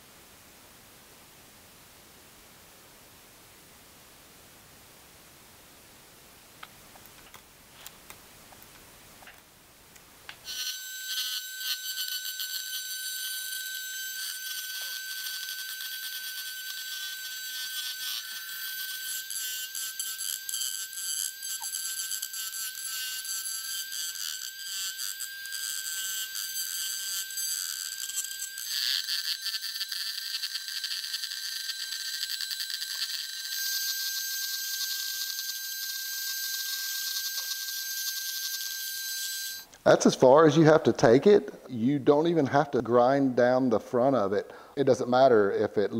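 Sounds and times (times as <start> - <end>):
rotary tool whining: 10.4 - 39.7.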